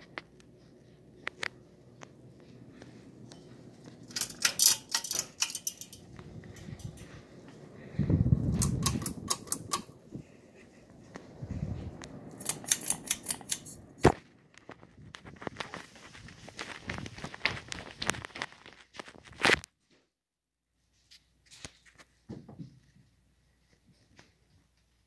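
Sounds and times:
pull chains rattling: 4.0 - 7.1, 8.5 - 10.0, 12.4 - 13.8.

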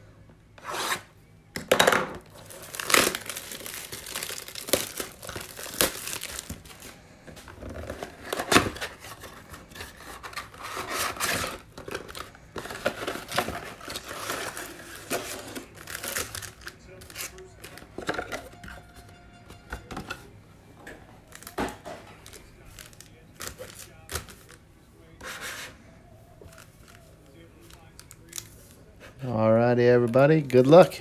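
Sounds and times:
plastic wrap crinkling and tearing: 2.3 - 18.4, 21.3 - 24.6, 26.4 - 28.8.

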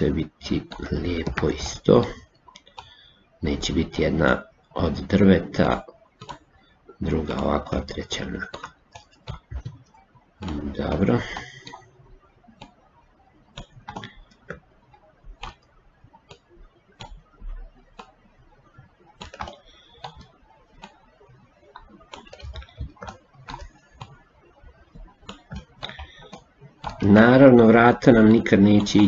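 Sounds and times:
mouse and keyboard clicks: 6.2 - 6.5, 12.5 - 12.9, 13.5 - 17.3, 17.9 - 27.1.

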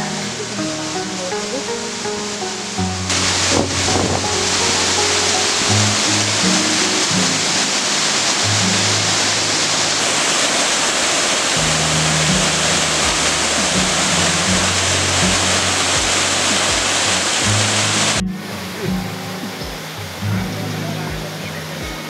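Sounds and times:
waterfall rushing: 0.0 - 22.0
background music with beat: 11.6 - 22.0.

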